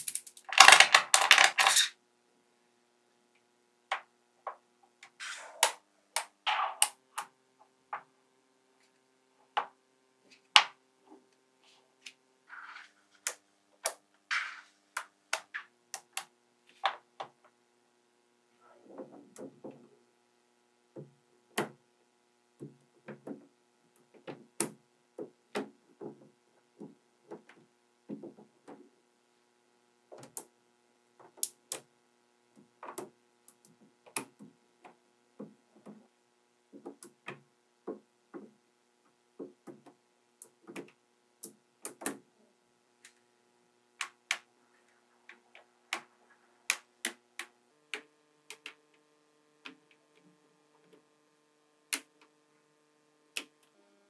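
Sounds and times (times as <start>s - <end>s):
magnetic balls clicking together: 0.0s - 1.9s, 13.2s - 16.3s, 45.2s - 48.8s.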